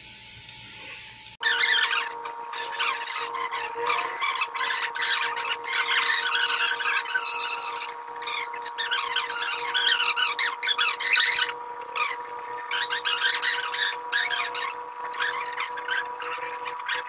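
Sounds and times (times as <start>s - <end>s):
high-pitched chirping and squeaking: 1.4s - 17.0s.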